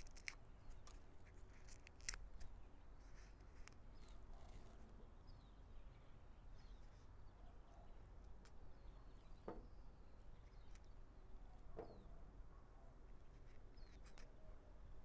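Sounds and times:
brief crackle: 0:00.0 - 0:02.5.

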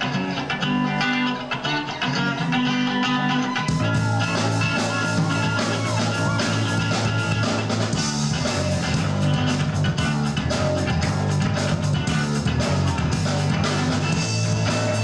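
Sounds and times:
bass guitar: 0:00.0 - 0:15.0
electric guitars: 0:00.0 - 0:15.0
rock band playing live: 0:00.0 - 0:15.0
steady drum beat: 0:03.7 - 0:15.0.

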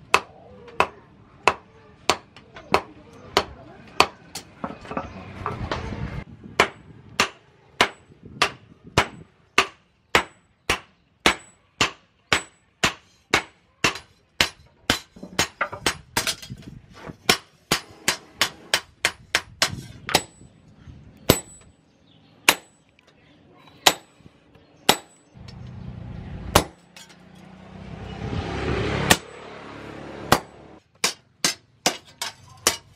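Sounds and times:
hammer striking metal on anvil: 0:30.3 - 0:32.9.

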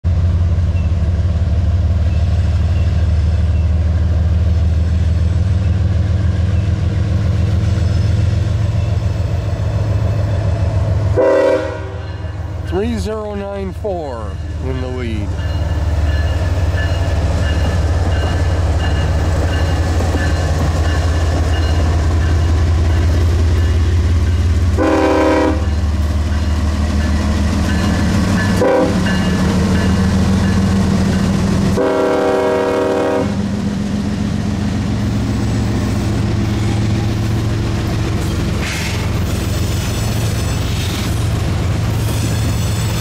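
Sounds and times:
diesel locomotive engine: 0:00.0 - 0:43.0
train horn blasts: 0:11.1 - 0:12.2, 0:24.7 - 0:25.8, 0:28.6 - 0:29.2, 0:31.8 - 0:33.5.

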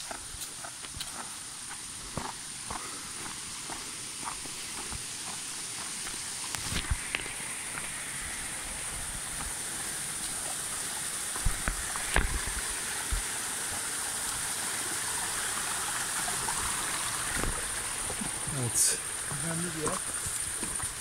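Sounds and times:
footsteps on stones: 0:00.0 - 0:09.6, 0:11.4 - 0:13.2, 0:17.3 - 0:18.4, 0:19.3 - 0:21.0
stream running over rocks: 0:00.0 - 0:21.0.

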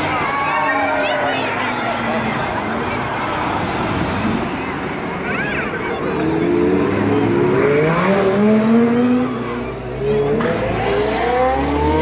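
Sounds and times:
car engine revving hard: 0:06.1 - 0:12.0.

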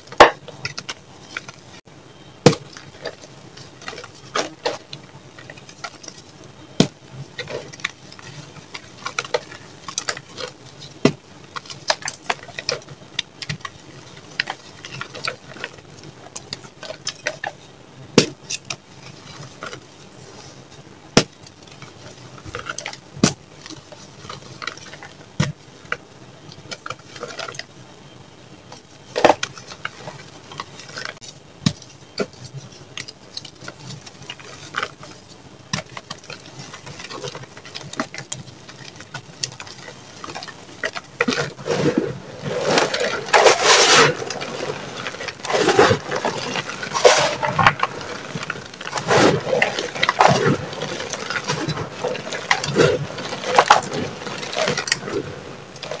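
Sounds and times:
chalk crushed and crunching: 0:28.8 - 0:56.0.

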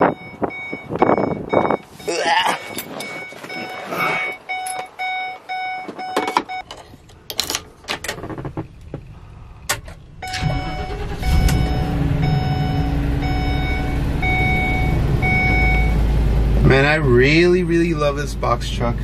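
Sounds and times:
dashboard warning chime beeping: 0:00.0 - 0:06.7, 0:10.2 - 0:16.0
truck engine starting and idling: 0:00.0 - 0:19.0
key turning in ignition: 0:06.0 - 0:09.1.

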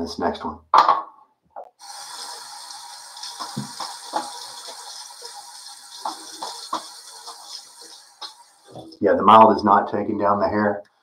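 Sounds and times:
tap water running: 0:01.8 - 0:09.0.

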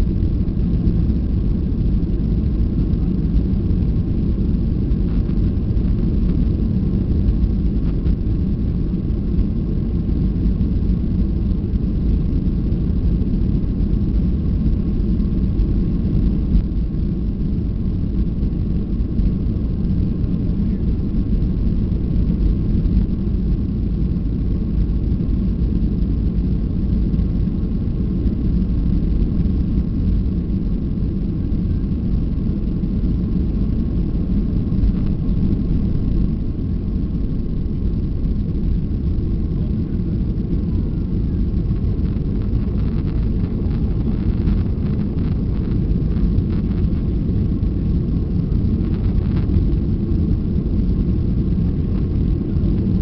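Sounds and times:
jet engines at takeoff: 0:00.0 - 0:53.0.

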